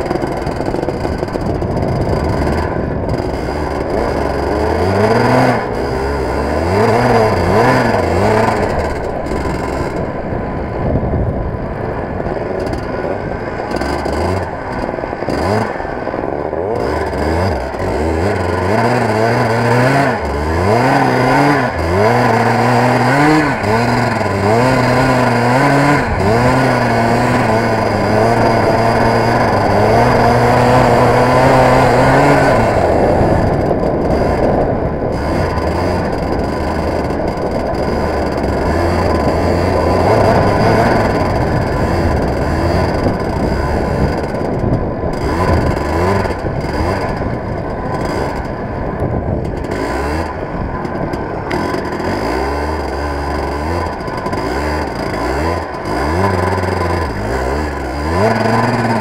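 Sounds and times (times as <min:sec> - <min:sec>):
go-kart engine revving: 0:00.0 - 0:59.0
wind noise on microphone: 0:00.0 - 0:59.0.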